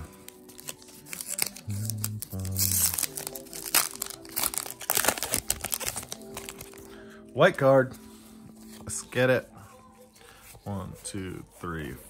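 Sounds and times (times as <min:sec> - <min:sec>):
foil wrapper crinkling and tearing: 0:00.0 - 0:06.9
background music: 0:00.0 - 0:12.0.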